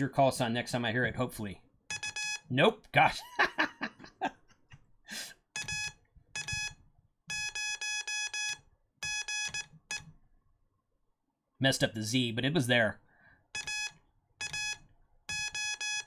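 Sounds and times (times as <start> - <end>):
morse code tones: 1.9 - 2.5, 5.6 - 10.1, 13.6 - 16.0
man laughing: 3.1 - 5.2.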